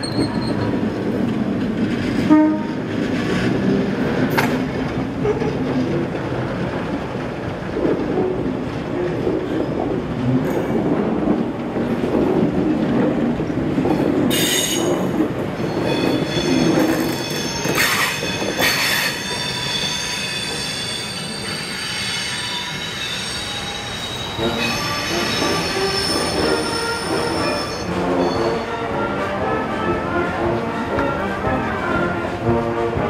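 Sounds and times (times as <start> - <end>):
train wheels squealing: 0.0 - 0.8, 14.3 - 28.8
train wheels rumbling: 0.0 - 33.0.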